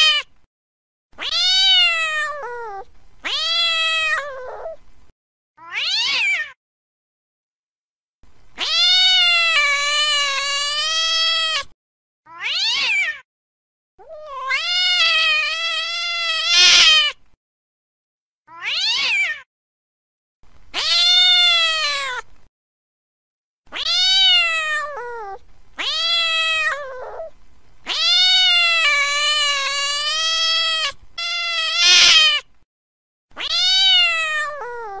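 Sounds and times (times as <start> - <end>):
cat yowling: 0.0 - 0.3, 1.2 - 4.8, 5.6 - 6.6, 8.6 - 11.7, 12.3 - 13.3, 14.0 - 17.2, 18.5 - 19.5, 20.8 - 22.3, 23.7 - 27.3, 27.9 - 32.5, 33.4 - 35.0.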